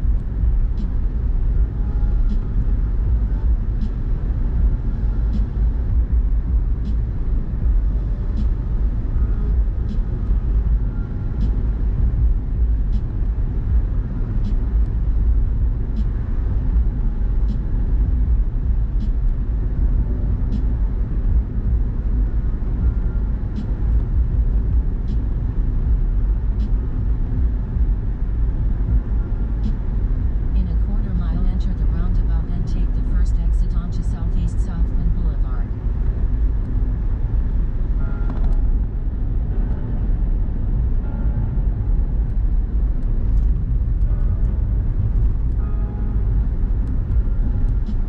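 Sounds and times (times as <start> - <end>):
car road and engine rumble: 0.0 - 48.0.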